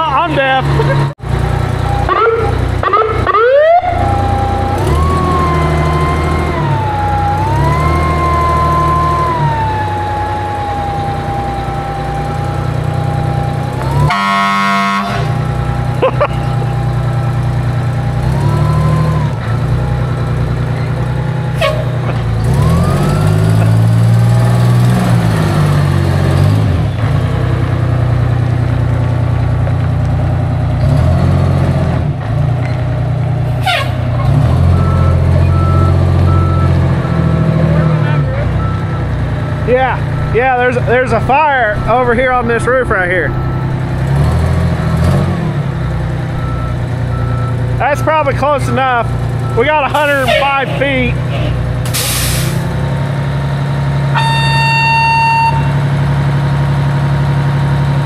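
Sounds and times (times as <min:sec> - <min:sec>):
fire truck siren wailing: 0:00.0 - 0:27.2, 0:33.5 - 0:56.7
truck engine running: 0:00.0 - 0:58.0
horn blast: 0:14.0 - 0:15.4, 0:21.6 - 0:22.1, 0:33.5 - 0:34.1, 0:49.6 - 0:52.6, 0:54.1 - 0:55.9.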